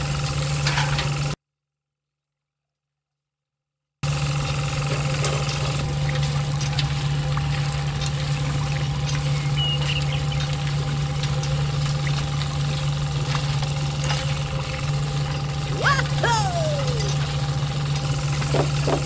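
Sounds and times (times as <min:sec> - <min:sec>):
small model engine humming: 0:12.6 - 0:19.0.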